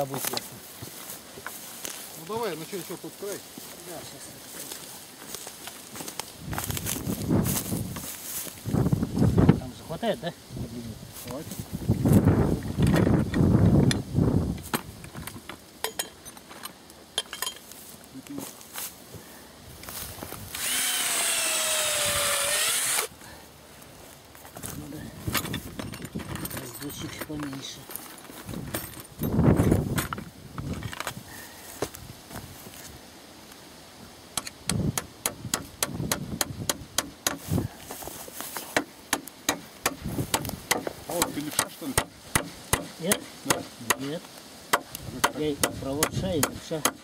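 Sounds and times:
cordless drill whining into wood: 20.5 - 23.1
wooden pole knocking into earth: 38.7 - 44.1.

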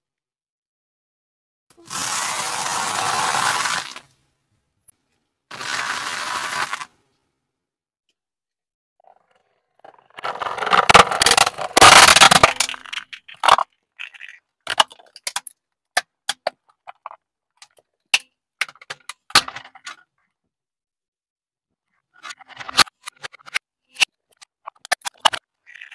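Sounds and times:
plastic toy crunching under tyre: 1.9 - 4.1, 5.5 - 6.9, 9.9 - 17.2.

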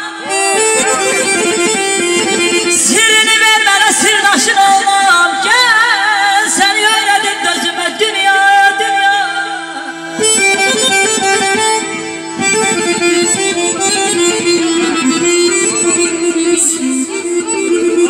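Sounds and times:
accordion-like melody: 0.0 - 8.1, 8.7 - 18.0
rhythmic instrumental music: 0.2 - 3.1, 10.2 - 18.0
woman singing with vibrato: 2.7 - 10.0.

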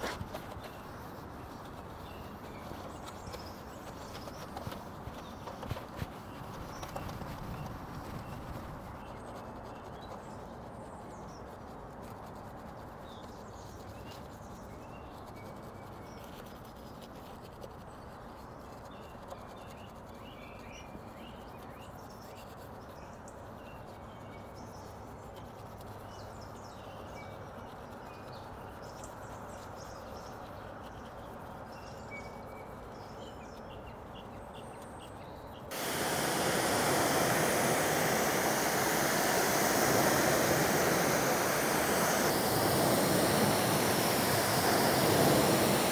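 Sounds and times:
pressure washer spraying water: 35.7 - 45.9.

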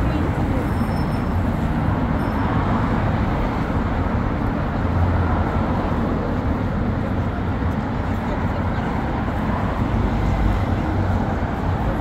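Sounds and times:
city street traffic: 0.0 - 12.0.

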